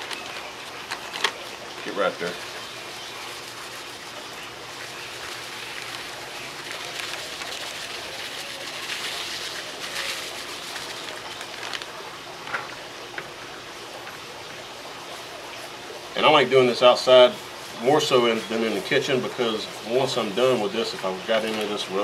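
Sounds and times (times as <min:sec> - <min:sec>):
plastic bag crinkling: 0:00.0 - 0:02.4, 0:03.0 - 0:12.8.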